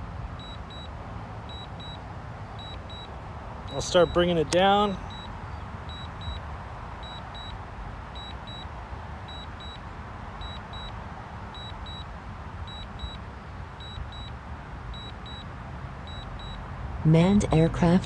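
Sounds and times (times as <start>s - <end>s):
high double beeps: 0.4s - 0.9s, 1.5s - 2.0s, 2.6s - 3.1s, 3.7s - 6.4s, 7.0s - 7.6s, 8.2s - 8.7s, 9.3s - 9.8s, 10.4s - 12.1s, 12.7s - 13.2s, 13.8s - 14.4s, 15.0s - 15.4s, 16.1s - 16.6s.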